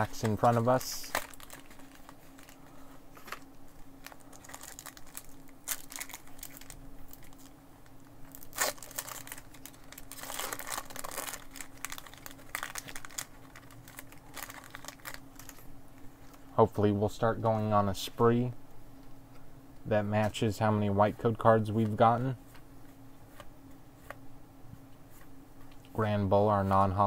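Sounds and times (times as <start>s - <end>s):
foil wrappers crinkling and tearing: 0.0s - 7.5s, 8.3s - 16.4s.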